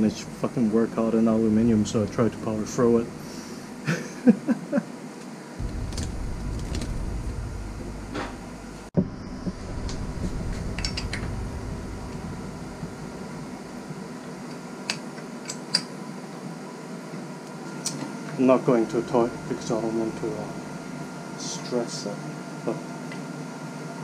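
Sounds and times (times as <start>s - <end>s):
steady low hum: 5.5s - 22.9s.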